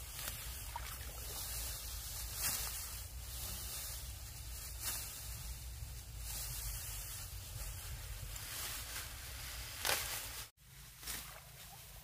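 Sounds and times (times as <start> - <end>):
rice stalks rustling: 0.0 - 12.0
sickle swishes: 0.0 - 12.0.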